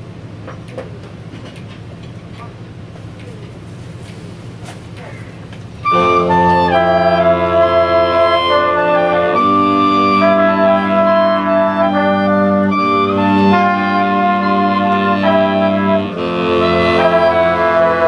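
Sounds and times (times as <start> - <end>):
jazz big band playing: 5.8 - 18.0.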